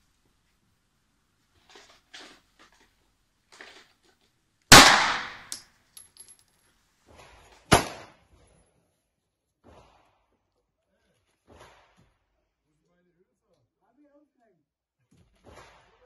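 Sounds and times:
pistol shots: 4.7s - 5.6s, 7.7s - 8.1s
light metallic clinks: 5.5s - 6.6s.

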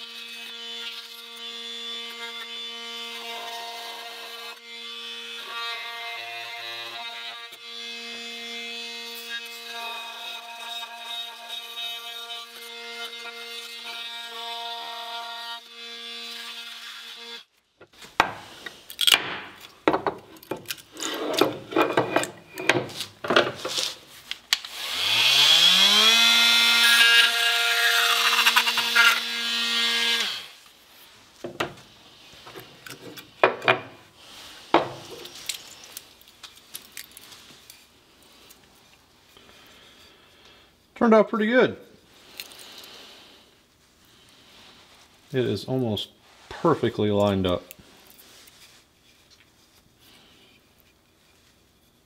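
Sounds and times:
oscillating multi-tool cutting wood: 0.0s - 17.5s, 24.6s - 30.7s.

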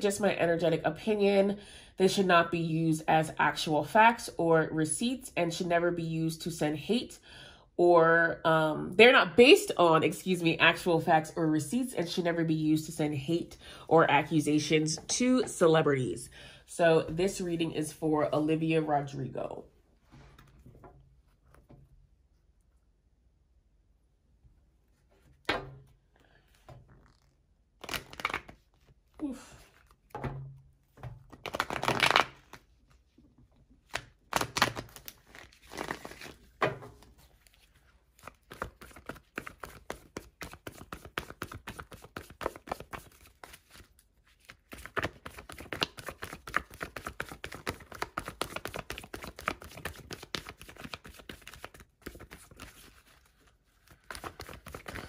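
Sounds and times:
cards riffling: 27.0s - 28.9s, 53.9s - 55.0s.

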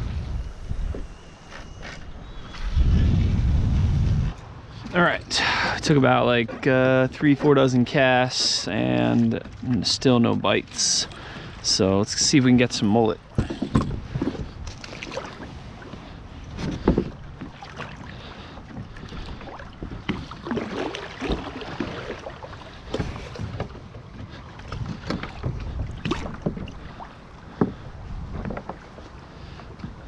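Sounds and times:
wind buffeting microphone: 0.0s - 1.4s, 2.0s - 5.3s, 13.4s - 22.1s
water sloshing and splashing: 4.4s - 30.0s.

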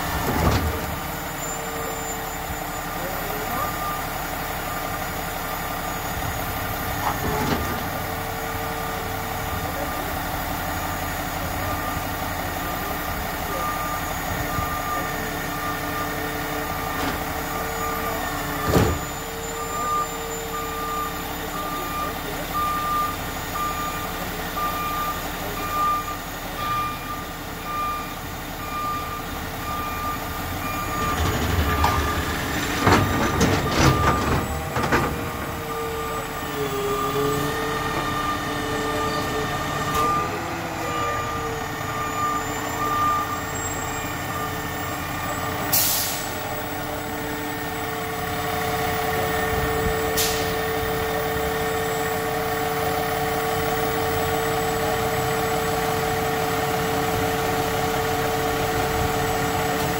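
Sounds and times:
garbage truck engine running: 0.0s - 59.9s
banging and clattering of cart: 31.0s - 35.6s.

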